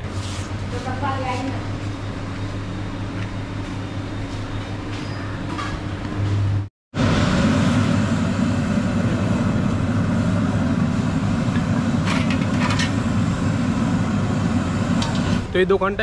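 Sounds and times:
motor traffic: 0:01.2 - 0:16.0
low hum: 0:06.0 - 0:15.7.

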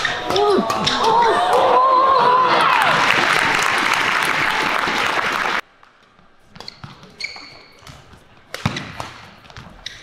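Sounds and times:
crowd applause and cheering: 0:01.2 - 0:05.6
shoes squeaking on court floor: 0:06.0 - 0:10.0.

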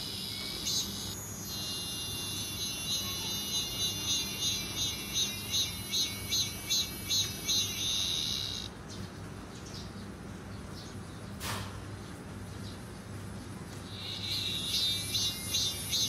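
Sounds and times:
insect buzz: 0:00.0 - 0:08.7, 0:13.9 - 0:16.0
insect calling in high pulses: 0:00.0 - 0:08.7, 0:13.9 - 0:16.0.

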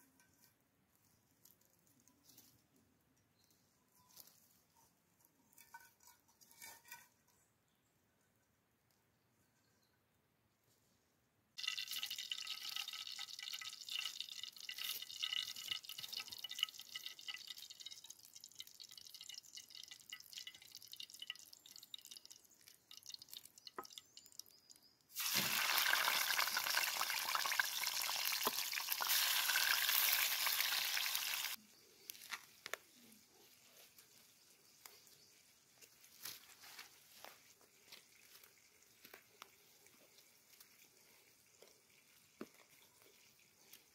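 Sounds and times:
hot oil crackling and spitting: 0:11.6 - 0:31.6
fish sizzling in oil: 0:25.1 - 0:31.6.

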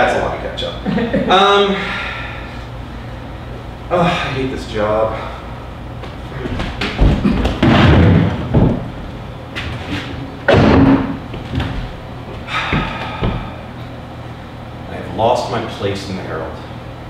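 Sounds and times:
footsteps on wooden stage: 0:06.0 - 0:10.2.

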